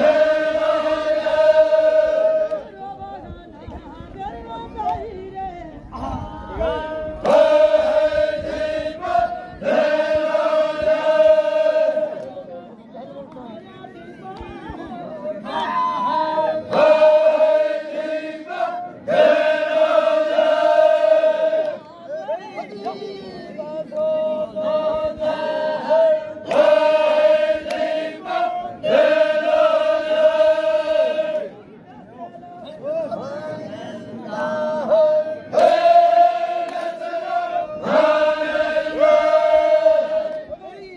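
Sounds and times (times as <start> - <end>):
men chanting long held notes: 0.0 - 2.7, 6.0 - 12.5, 15.5 - 21.8, 23.1 - 31.5, 33.2 - 40.7.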